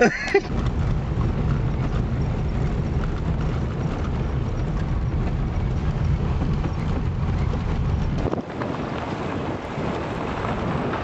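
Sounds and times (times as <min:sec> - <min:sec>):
car road and wind rumble: 0:00.0 - 0:11.0
knocks and rattles: 0:00.1 - 0:08.7.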